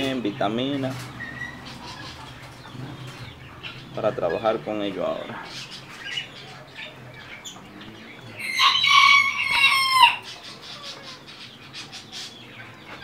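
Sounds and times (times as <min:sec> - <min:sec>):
rooster crowing: 0:08.4 - 0:10.3.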